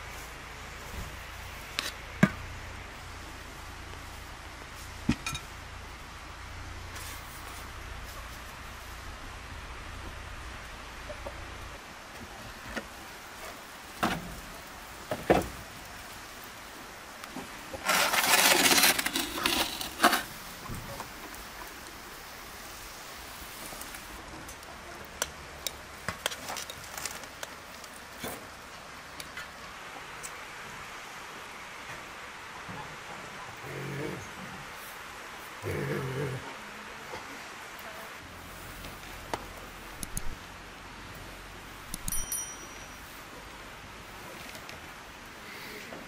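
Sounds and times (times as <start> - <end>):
dishes and utensils clinking: 5.1 - 5.5
metal tray scraping: 17.8 - 20.3.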